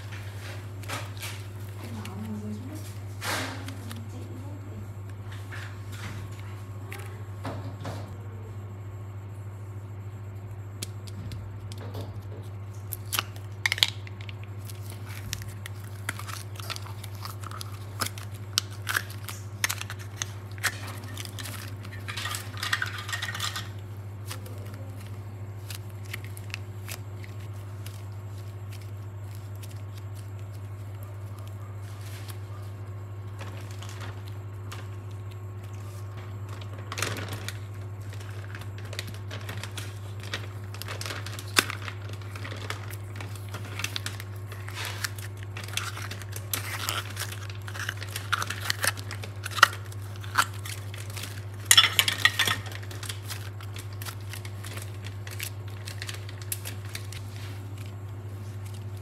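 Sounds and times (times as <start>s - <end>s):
plastic crinkling: 0.0s - 7.4s, 10.8s - 59.0s
steady low hum: 0.0s - 59.0s
handling of clay: 24.2s - 59.0s.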